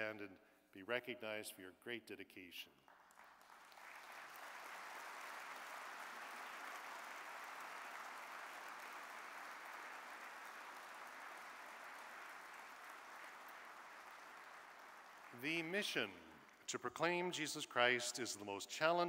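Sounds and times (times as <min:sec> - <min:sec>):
audience applauding: 0:02.9 - 0:16.7.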